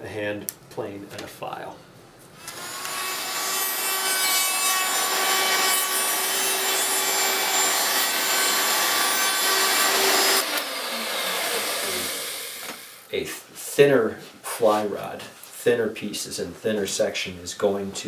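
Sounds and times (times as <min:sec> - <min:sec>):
router cutting bamboo: 0:02.5 - 0:12.8
router motor whine: 0:08.5 - 0:12.9.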